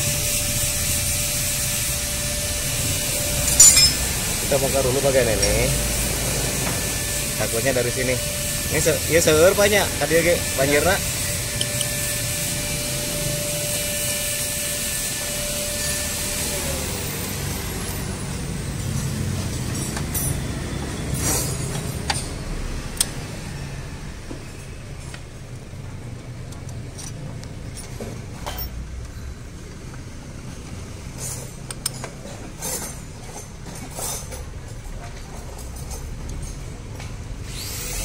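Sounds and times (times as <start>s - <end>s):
power tool whine: 0.0s - 24.9s, 37.4s - 38.0s
hand tools clicking on metal: 3.4s - 4.1s, 5.3s - 5.8s, 11.6s - 12.0s.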